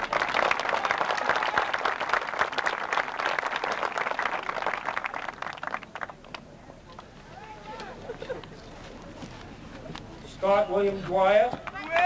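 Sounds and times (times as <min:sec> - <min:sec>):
audience applauding: 0:00.0 - 0:06.4.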